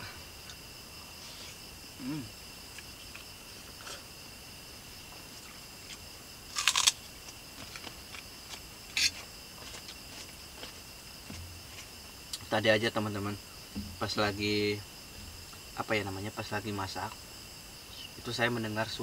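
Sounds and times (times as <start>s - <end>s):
crickets chirring: 0.0s - 19.0s
person humming mm: 2.0s - 2.3s.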